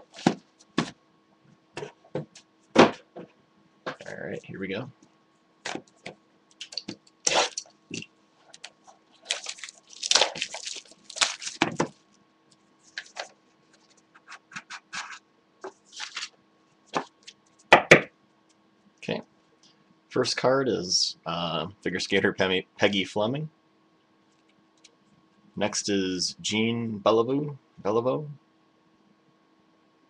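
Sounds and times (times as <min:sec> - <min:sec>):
foil wrapper crinkling and tearing: 0:06.6 - 0:07.7, 0:08.5 - 0:12.0, 0:15.8 - 0:16.4.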